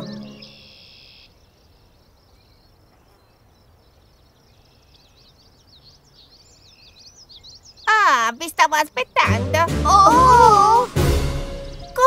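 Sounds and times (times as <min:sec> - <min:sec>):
soft steady hiss: 0:00.0 - 0:09.2
small birds chirping: 0:00.0 - 0:10.8, 0:11.4 - 0:12.0.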